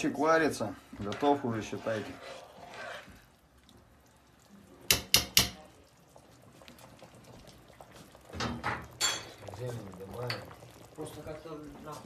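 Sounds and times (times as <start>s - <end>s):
faint bubbling: 0.0s - 4.9s, 5.5s - 12.0s
metal clanks on pot: 4.9s - 5.6s, 8.3s - 9.6s.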